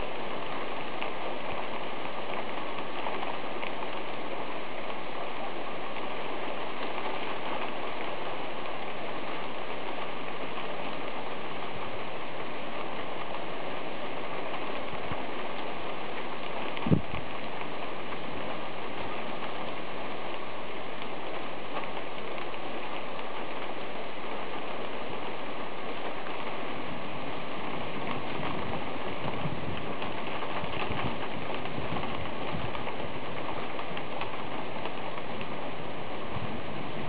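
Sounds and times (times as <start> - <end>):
heavy rain hiss: 0.0 - 37.0
raindrop ticks: 0.0 - 37.0.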